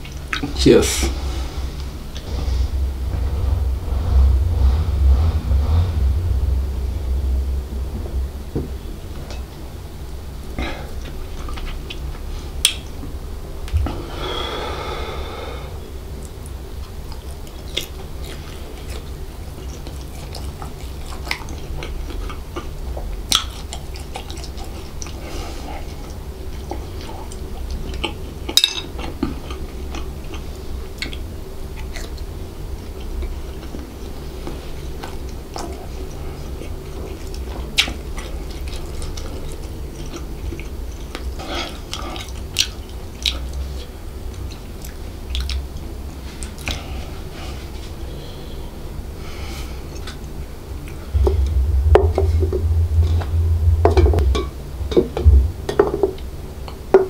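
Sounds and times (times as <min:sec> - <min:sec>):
steady low hum: 0:00.0 - 0:28.5, 0:47.2 - 0:57.0.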